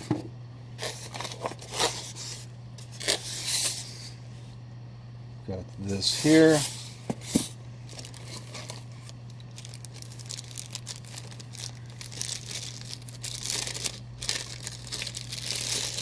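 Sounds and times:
plastic bags crinkling: 0:07.8 - 0:16.0.

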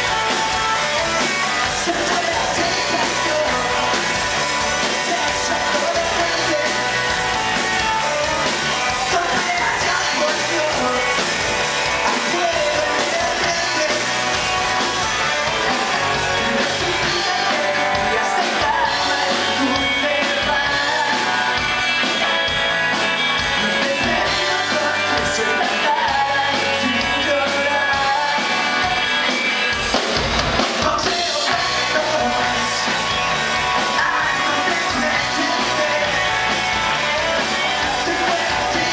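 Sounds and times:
bass guitar: 0:00.0 - 0:38.9
drum kit: 0:00.0 - 0:38.9
electric guitars: 0:00.0 - 0:38.9
man singing into microphone: 0:01.6 - 0:04.0, 0:04.8 - 0:06.9, 0:09.0 - 0:11.2, 0:12.0 - 0:14.2, 0:15.7 - 0:21.5, 0:23.6 - 0:29.0, 0:30.7 - 0:32.9, 0:33.8 - 0:36.5, 0:37.2 - 0:38.9.

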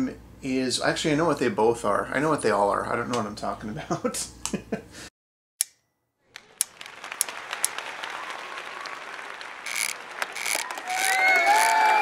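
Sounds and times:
audience clapping: 0:06.3 - 0:12.0.

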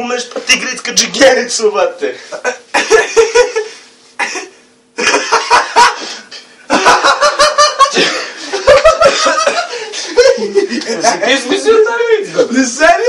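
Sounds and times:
people laughing: 0:02.2 - 0:03.8, 0:05.0 - 0:13.0.

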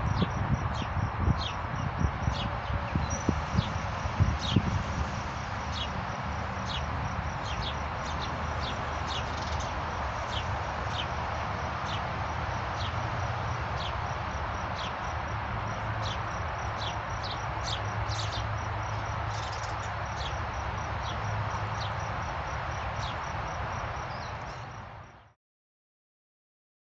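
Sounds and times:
high insect trill: 0:00.0 - 0:25.2
outdoor background noise: 0:00.0 - 0:25.4
songbirds chirping: 0:02.3 - 0:12.1, 0:12.7 - 0:13.1, 0:13.7 - 0:22.1, 0:22.8 - 0:24.9.

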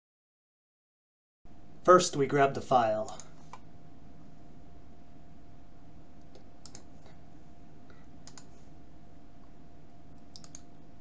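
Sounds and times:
faint electrical hum: 0:01.5 - 0:11.0
computer mouse clicking: 0:06.2 - 0:07.2, 0:08.2 - 0:08.6, 0:10.2 - 0:10.8.

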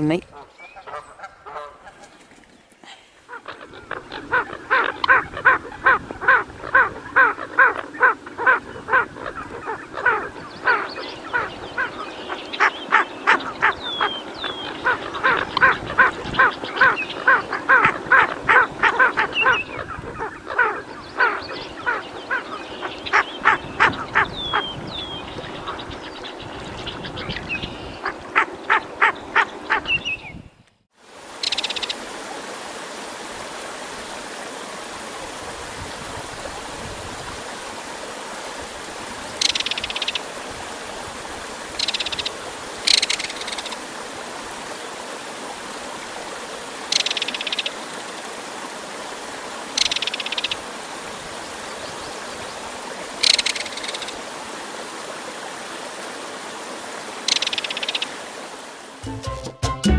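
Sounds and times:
rapid clucking animal calls: 0:00.3 - 0:24.8.

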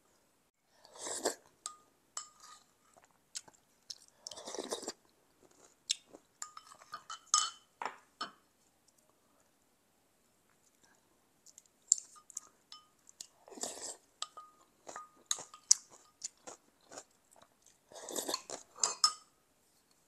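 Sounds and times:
chewing: 0:02.3 - 0:06.9, 0:10.6 - 0:19.0.

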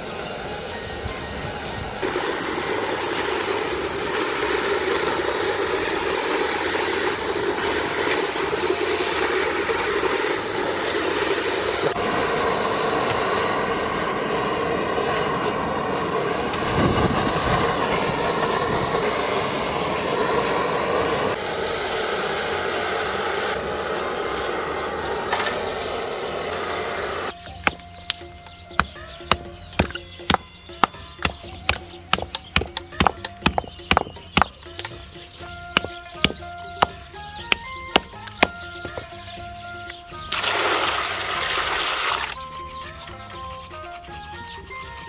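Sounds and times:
blowtorch flame hissing: 0:00.0 - 0:27.4, 0:40.3 - 0:42.4.

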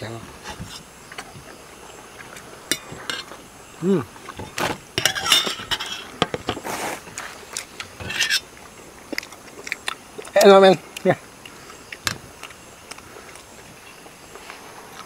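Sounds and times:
person humming: 0:03.8 - 0:04.1
forks clinking on metal pan: 0:05.0 - 0:06.1.

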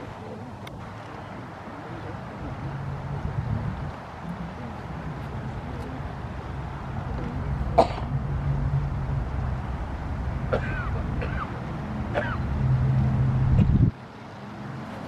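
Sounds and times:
steady low hum: 0:00.0 - 0:15.0
person coughing: 0:07.8 - 0:08.1.

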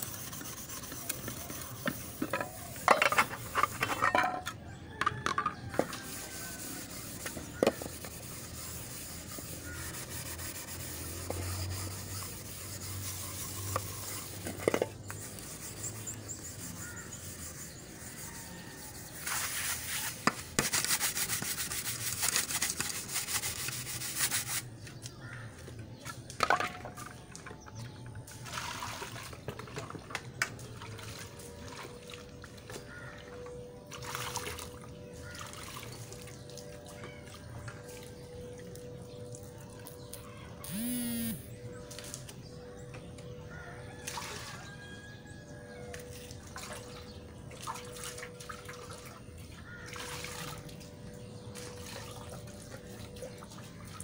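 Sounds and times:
pots being scrubbed: 0:00.0 - 0:04.5, 0:05.3 - 0:24.7
metal pots clanking: 0:02.3 - 0:05.6.

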